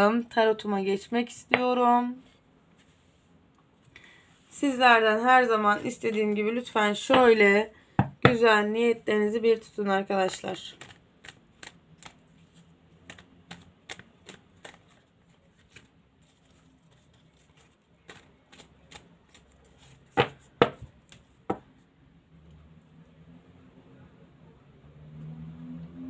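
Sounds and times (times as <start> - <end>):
cards being shuffled: 10.7 - 21.4.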